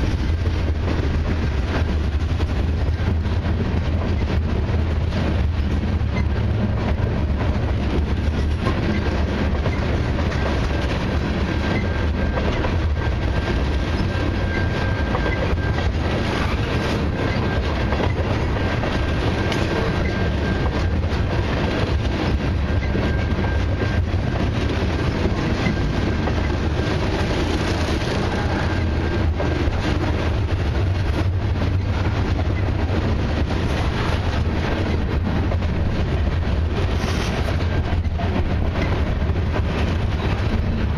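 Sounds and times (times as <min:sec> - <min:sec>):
clickety-clack over rail joints: 0:00.0 - 0:40.9
train wheels rumbling on rails: 0:00.0 - 0:40.9.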